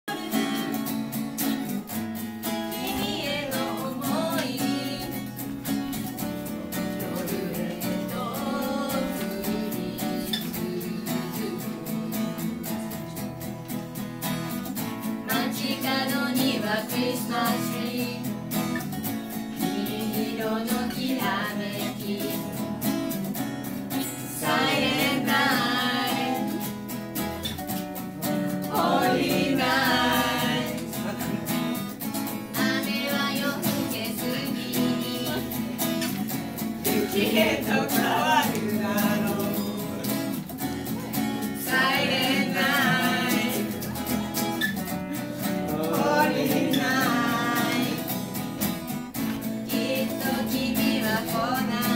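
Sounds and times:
woman singing: 0.0 - 1.1, 2.6 - 13.0, 15.2 - 18.4, 19.5 - 22.9, 28.7 - 31.0, 32.4 - 39.9, 41.5 - 44.0, 45.8 - 48.2, 49.4 - 51.9
acoustic guitar: 0.0 - 51.9
electric guitar: 0.0 - 51.9.

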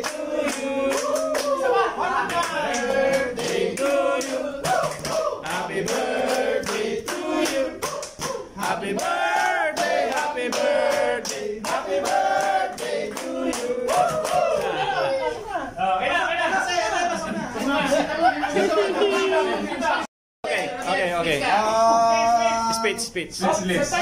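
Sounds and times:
hands clapping rhythmically: 0.0 - 14.8
men singing together: 0.0 - 15.0.

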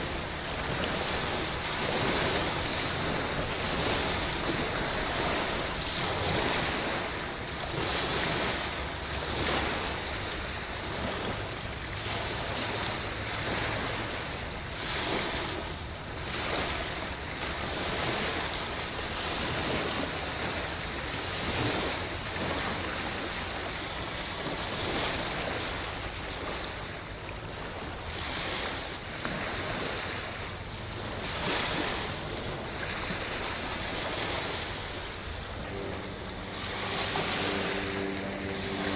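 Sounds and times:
low steady rumble: 0.0 - 38.9
waves washing against bank: 0.0 - 38.9
wind on microphone: 0.0 - 38.9.

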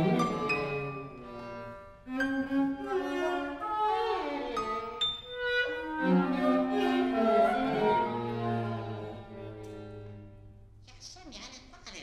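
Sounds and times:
chamber ensemble playing: 0.0 - 10.6.

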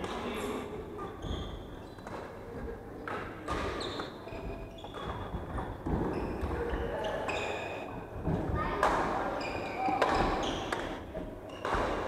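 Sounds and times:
shoes squeaking on floor: 1.0 - 8.1, 9.3 - 12.0
racket hitting shuttlecock: 9.9 - 12.0.

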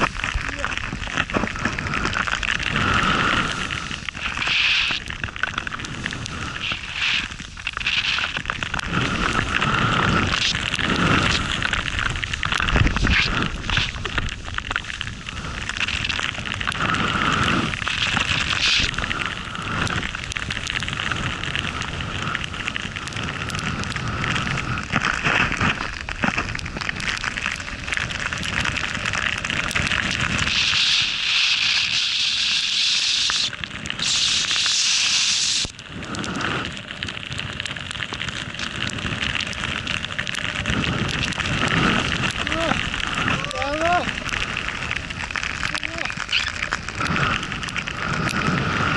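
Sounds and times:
skis hissing through powder snow: 0.0 - 29.1, 29.7 - 36.8, 40.6 - 45.0, 45.6 - 48.9
wind buffeting microphone: 8.8 - 31.2, 38.6 - 48.9.

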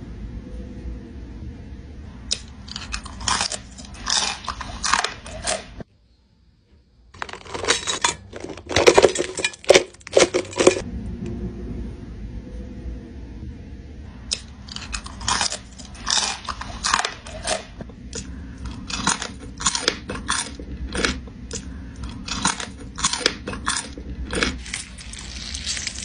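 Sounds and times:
crunching and chewing fried crabs: 2.3 - 5.8, 14.3 - 26.0.

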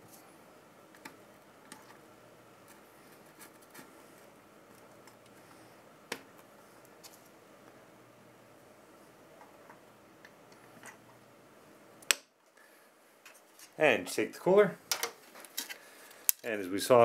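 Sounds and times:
plastic spacers clicking into place: 14.9 - 16.4.

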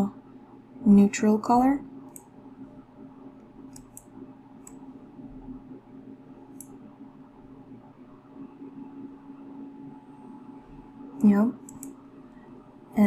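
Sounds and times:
low steady hum: 0.0 - 13.0
computer mouse clicks: 2.1 - 2.3, 3.7 - 4.8, 6.5 - 6.8, 11.2 - 12.0.

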